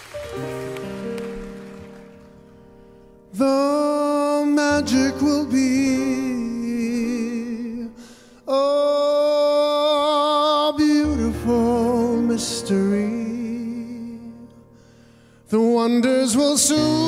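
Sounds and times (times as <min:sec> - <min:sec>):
male vocal quartet singing: 0:15.5 - 0:17.0.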